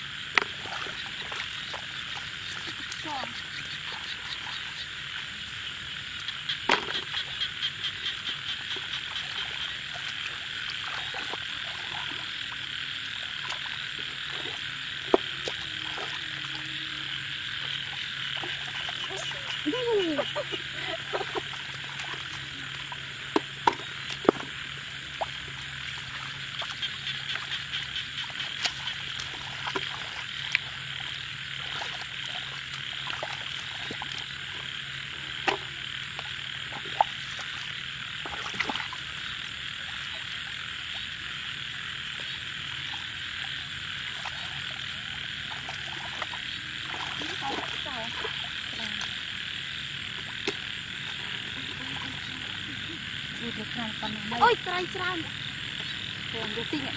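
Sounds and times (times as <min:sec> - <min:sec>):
chorus of frogs calling: 0:00.0 - 0:56.9
water and mud splashing: 0:00.0 - 0:56.9
frog croaking in quick pulses: 0:01.6 - 0:09.9.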